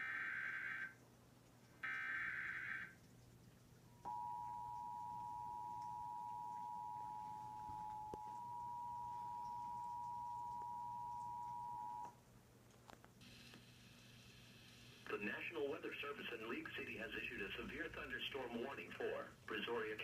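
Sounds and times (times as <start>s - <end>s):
two-tone alert signal: 4.1s - 12.1s.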